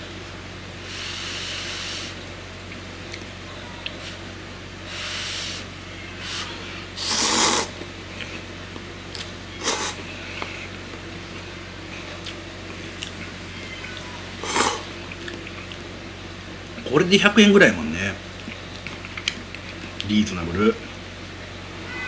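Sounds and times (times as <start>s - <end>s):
man slurping noodles: 4.9s - 7.8s, 14.4s - 14.9s.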